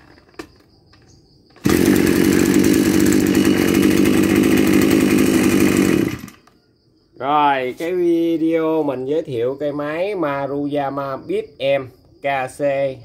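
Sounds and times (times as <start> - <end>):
brush cutter engine running: 1.6 - 6.5.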